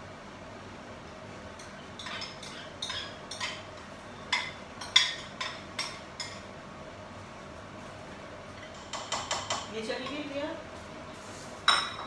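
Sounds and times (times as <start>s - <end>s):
spoon clinking against a bowl: 1.6s - 3.6s.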